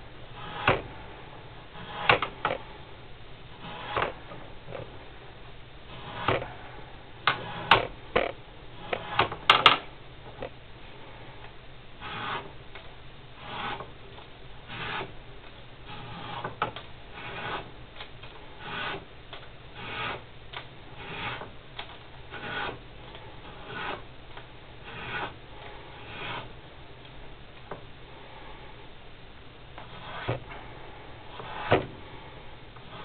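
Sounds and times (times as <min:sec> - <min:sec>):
sanding film rasping on felt: 0:00.4 - 0:00.7, 0:01.7 - 0:02.2, 0:12.0 - 0:12.5, 0:13.4 - 0:13.9, 0:14.7 - 0:15.1, 0:15.8 - 0:17.8, 0:18.6 - 0:19.0, 0:19.8 - 0:20.2, 0:21.0 - 0:21.5, 0:22.3 - 0:24.1, 0:24.8 - 0:26.6.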